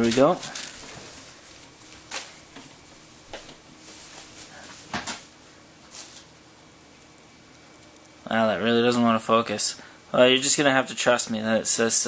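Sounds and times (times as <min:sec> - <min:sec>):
paper packet rustling: 0:00.0 - 0:06.3.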